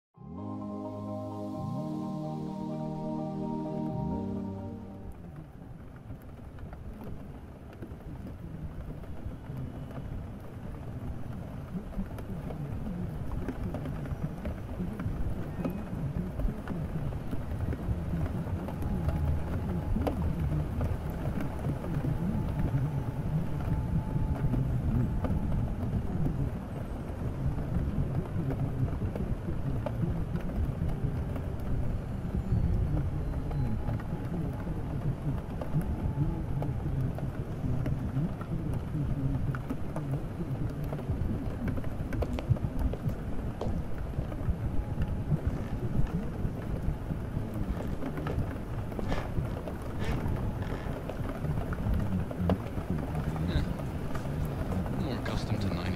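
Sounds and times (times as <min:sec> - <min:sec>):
steady rain: 0:00.3 - 0:55.9
raindrop ticks: 0:32.7 - 0:55.9.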